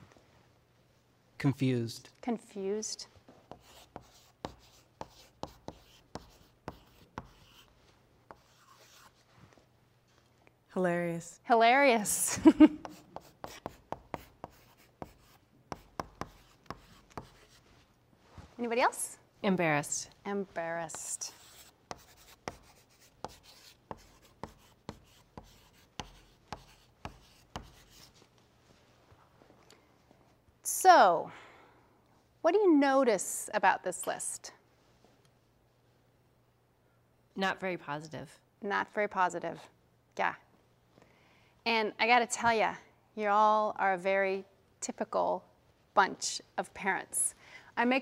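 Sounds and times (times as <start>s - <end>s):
chalk tapping and scratching: 3.4s - 9.2s, 12.8s - 17.7s, 20.8s - 28.3s.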